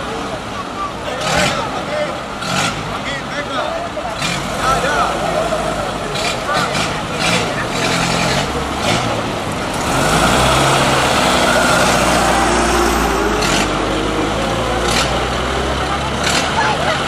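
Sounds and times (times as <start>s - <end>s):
car engine accelerating: 4.0s - 17.0s.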